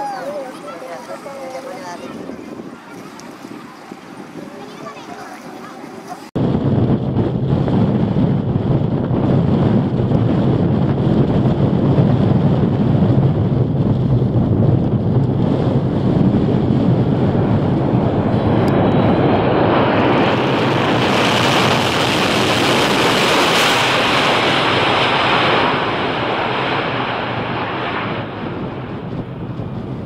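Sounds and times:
jet engines in reverse thrust: 0:06.3 - 0:30.0.

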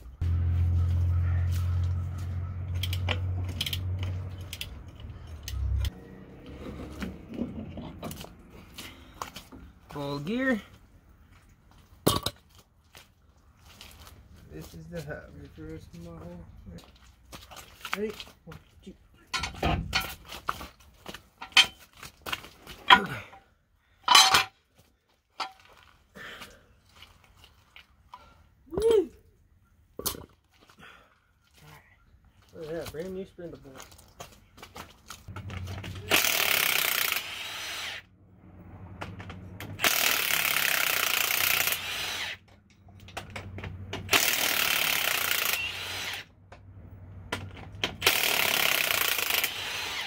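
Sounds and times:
metal parts clinking and rattling: 0:02.7 - 0:06.0, 0:19.3 - 0:20.3, 0:21.4 - 0:22.0, 0:24.0 - 0:24.6
metal clanks and knocks: 0:19.3 - 0:20.3, 0:21.4 - 0:21.8, 0:24.1 - 0:24.6.

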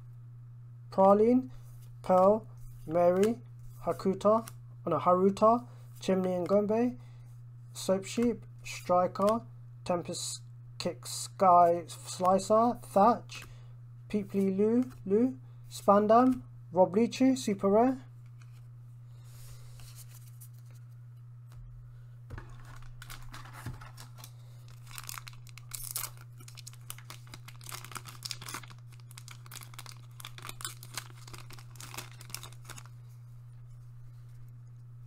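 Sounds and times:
steady low hum: 0:00.0 - 0:35.0
foil pack crinkling and tearing: 0:22.4 - 0:33.1.

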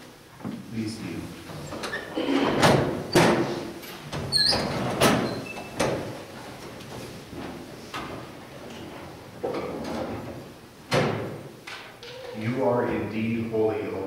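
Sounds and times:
people shuffling: 0:00.0 - 0:10.8.

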